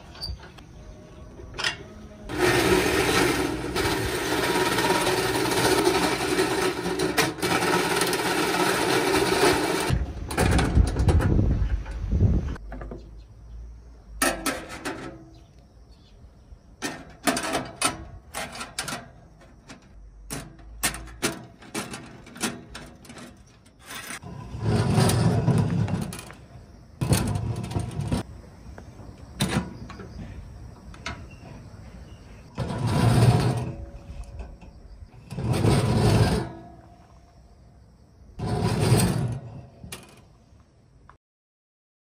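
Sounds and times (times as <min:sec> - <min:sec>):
steel scraping on table: 0:02.3 - 0:10.0, 0:21.8 - 0:26.4, 0:32.5 - 0:37.2, 0:38.4 - 0:40.2.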